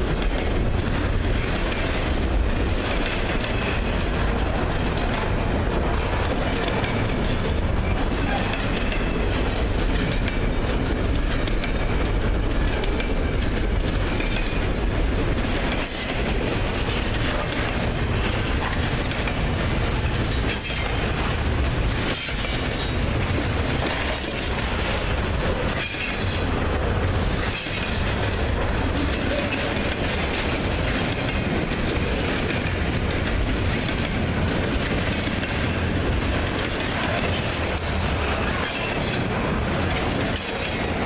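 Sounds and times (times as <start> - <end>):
freight train wheels rumbling: 0.0 - 41.0.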